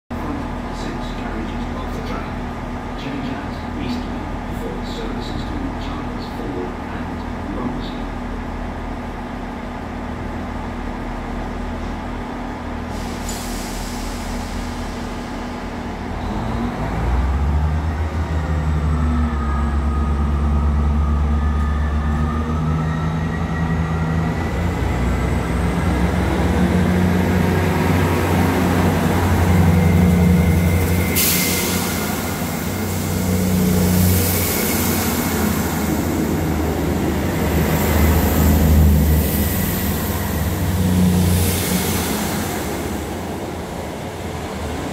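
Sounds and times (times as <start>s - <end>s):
train diesel engines revving: 0.1s - 44.9s
high whine rising in pitch: 18.0s - 44.3s
carriages hissing past: 24.9s - 44.9s.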